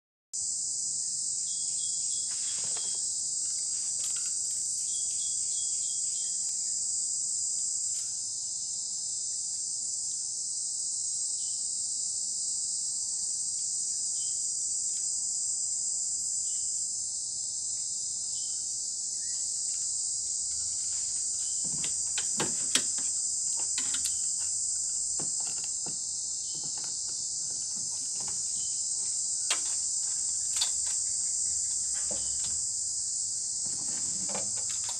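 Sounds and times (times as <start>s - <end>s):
high-pitched insect chorus: 0.4s - 34.9s
sharp clicks and knocks: 21.2s - 28.7s, 29.4s - 31.1s, 33.6s - 34.9s.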